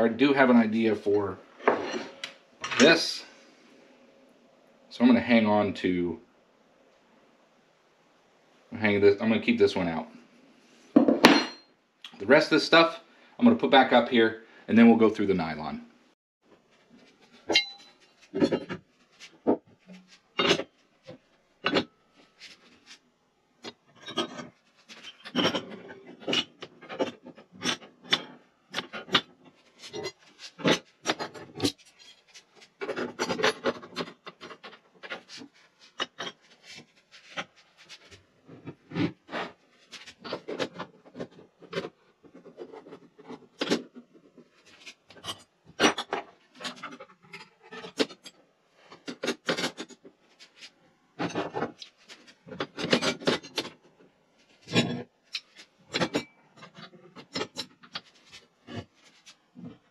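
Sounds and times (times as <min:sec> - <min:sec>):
metal bars knocking and clinking: 0:17.5 - 0:18.0.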